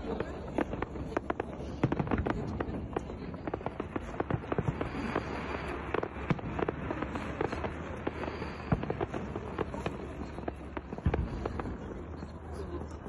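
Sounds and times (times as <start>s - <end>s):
fireworks popping and banging: 0.0s - 13.0s.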